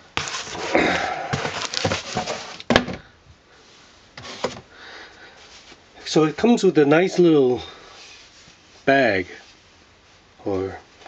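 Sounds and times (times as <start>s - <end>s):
cloth and cardboard rustling: 0.0s - 3.0s, 3.6s - 10.3s.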